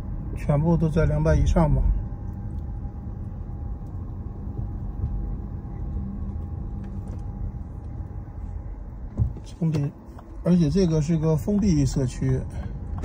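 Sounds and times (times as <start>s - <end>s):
car tyres and engine rumble: 0.0s - 13.0s.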